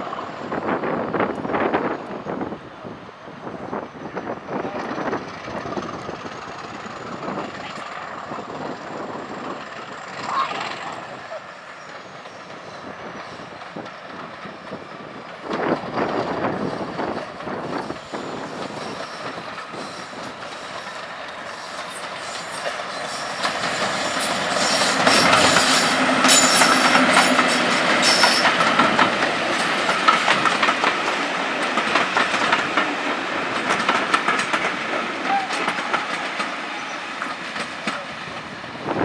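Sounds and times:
diesel locomotive engine running: 0.6s - 39.0s
wheels clattering over rail joints: 13.2s - 36.6s.

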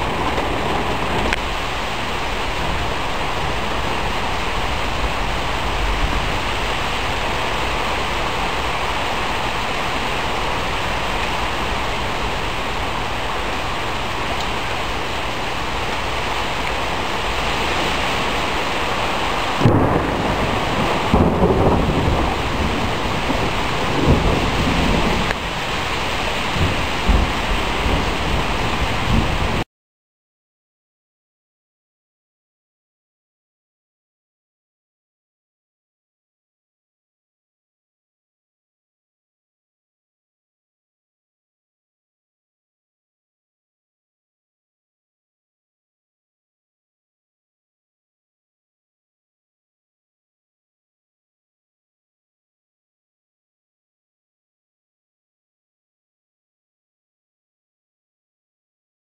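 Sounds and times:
thunderclap and rolling thunder: 0.0s - 29.6s
rain falling steadily: 0.0s - 29.7s.

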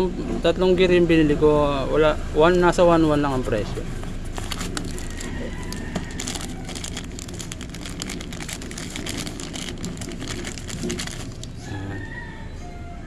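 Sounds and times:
low background rumble: 2.4s - 11.8s
plastic bag crinkling: 4.1s - 11.6s.

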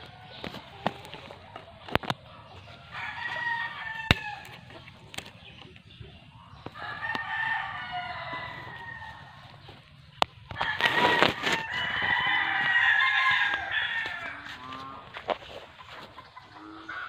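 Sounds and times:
rooster crowing: 2.9s - 4.5s, 6.7s - 9.5s, 10.5s - 15.2s.

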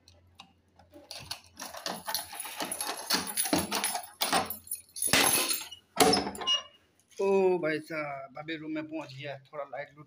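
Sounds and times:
padlock and latch rattling: 0.8s - 6.6s.

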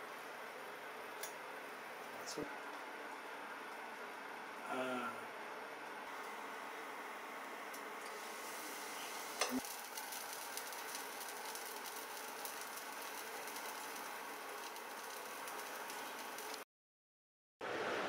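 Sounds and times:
batter sizzling on hot pan: 6.1s - 16.6s.

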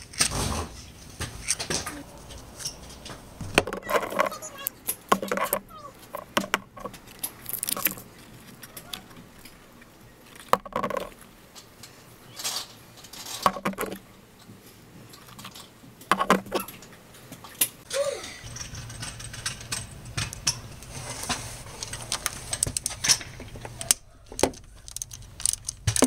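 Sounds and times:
metal spark plugs clinking: 21.9s - 26.0s.

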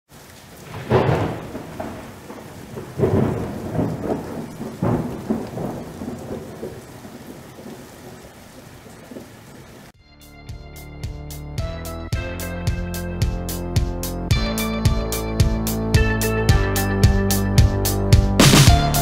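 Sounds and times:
steady rain: 0.1s - 10.0s, 16.5s - 19.0s
rolls of thunder: 0.6s - 9.3s.

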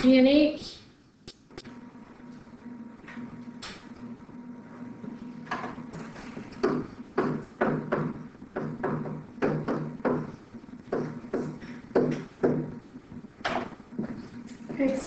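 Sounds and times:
low steady hum: 0.0s - 15.0s
stylus tapping and scratching: 5.0s - 15.0s.

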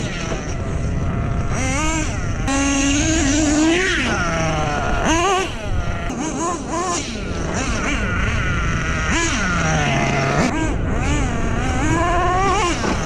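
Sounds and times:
rc truck engine revving: 0.0s - 13.0s.

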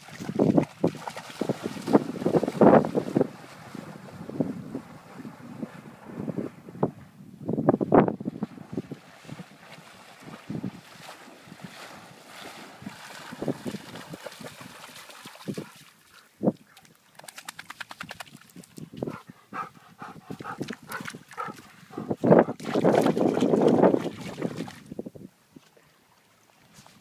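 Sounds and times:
dog splashing through water: 0.0s - 5.7s, 8.3s - 24.9s
dog panting hard: 19.0s - 22.2s.

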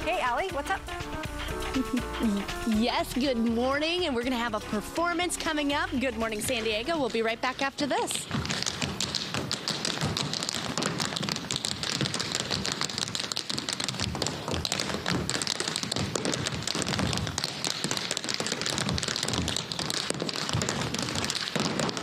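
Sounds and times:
tap shoes on stage floor: 5.4s - 22.0s.

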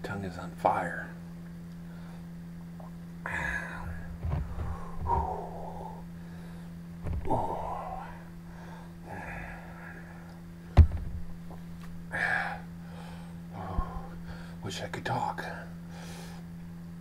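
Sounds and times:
man breathing hard: 3.2s - 10.4s, 12.1s - 14.6s, 15.8s - 16.5s
sharp knock: 10.8s - 11.3s.

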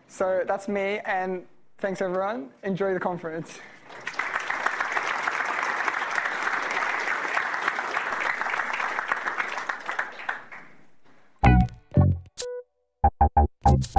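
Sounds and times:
audience applauding: 3.8s - 10.9s
closing music: 11.4s - 12.6s.

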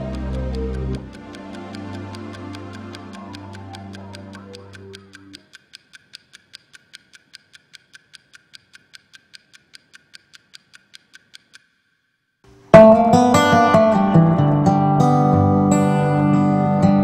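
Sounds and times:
clock ticking: 0.0s - 14.0s
guitar music: 12.5s - 17.0s.

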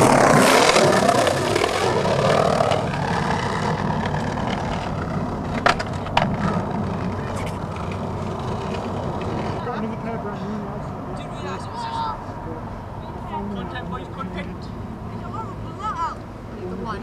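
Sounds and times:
skateboard clacks: 0.0s - 9.6s
skateboard wheels rolling on concrete: 0.0s - 17.0s.

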